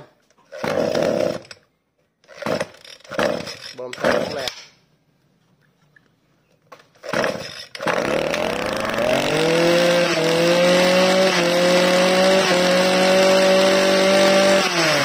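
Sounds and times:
brush cutter engine pull-started: 0:02.3 - 0:04.5, 0:07.0 - 0:15.0.

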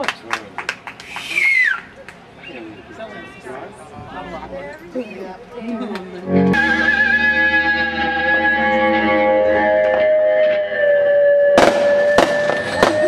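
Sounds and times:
electric guitar sustained notes: 0:06.2 - 0:13.0
band chord ringing out: 0:06.3 - 0:12.8.

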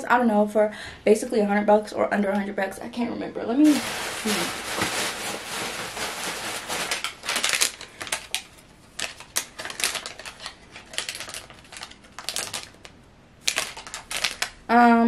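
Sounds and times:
paper rustling and crinkling: 0:03.6 - 0:14.6.

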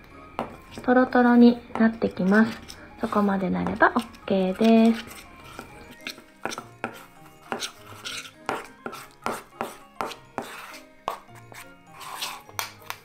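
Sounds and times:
metal spoon scraping steel bowl: 0:02.2 - 0:12.6.

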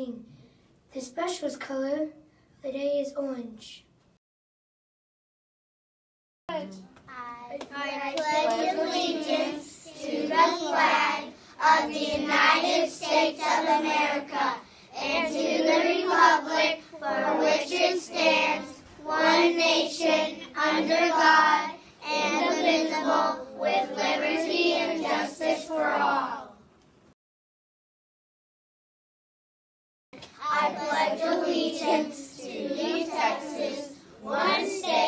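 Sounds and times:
children reciting in unison: 0:07.7 - 0:26.6, 0:30.4 - 0:35.0.

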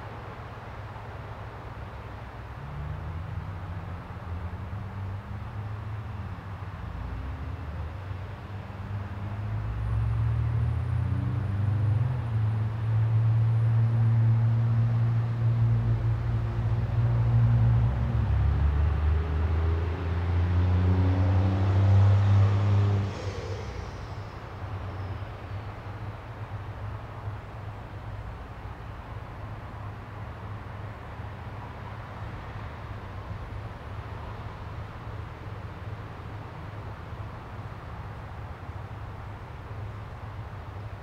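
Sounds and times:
low motor hum: 0:22.4 - 0:25.3
faint high whine: 0:22.8 - 0:26.3.

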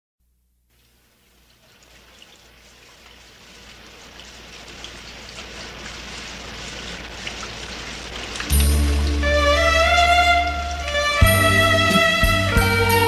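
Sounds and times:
rain hiss: 0:00.7 - 0:13.0
raindrop ticks: 0:07.0 - 0:11.3.

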